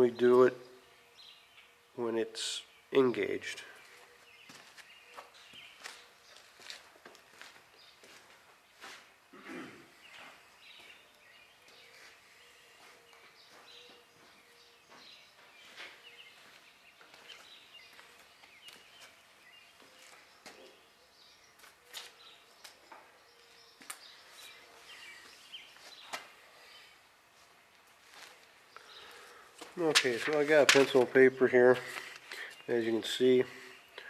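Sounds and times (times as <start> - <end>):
faint bird chirps: 8.8 - 27.0.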